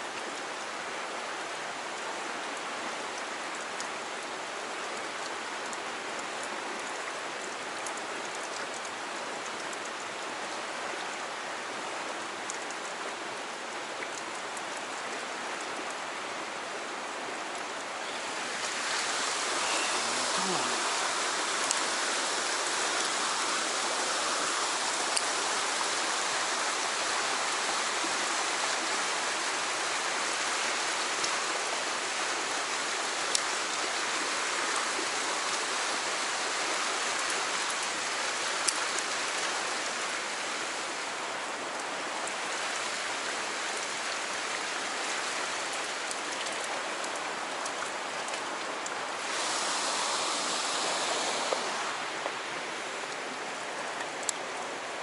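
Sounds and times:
water rushing through rocks: 0.0 - 55.0.

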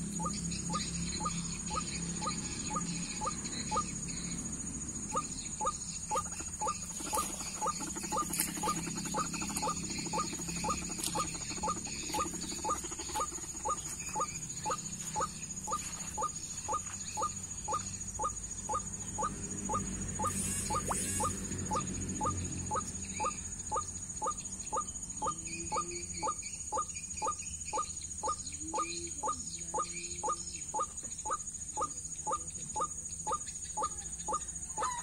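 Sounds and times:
bird calling short sharp notes: 20.2 - 21.4.

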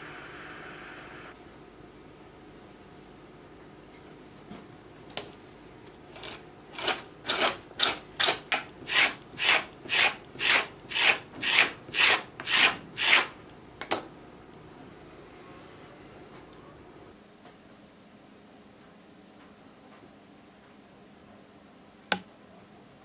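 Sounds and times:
hand rasp on wood: 8.9 - 13.3.

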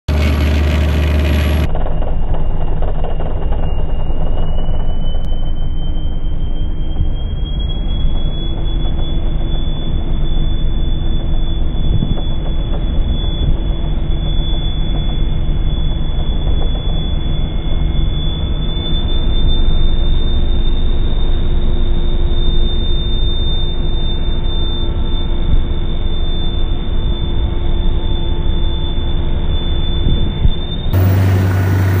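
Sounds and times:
strong low hum: 0.0 - 14.5, 26.6 - 32.0
slowed speedboat engine drone: 0.0 - 32.0.

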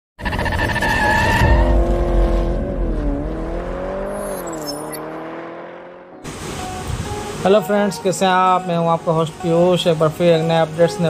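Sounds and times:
tyres screeching: 0.2 - 2.2
car engine revving high: 0.8 - 6.2.

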